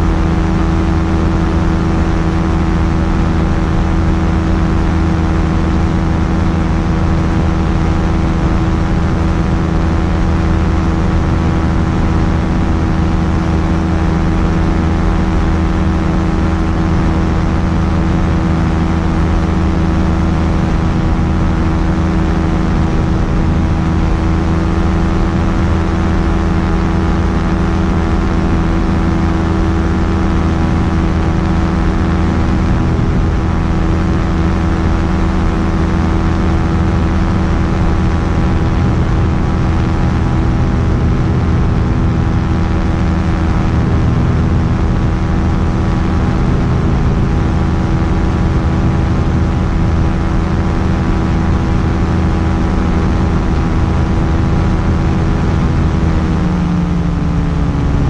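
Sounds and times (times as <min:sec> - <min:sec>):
aircraft engine drone: 0:00.0 - 0:58.0.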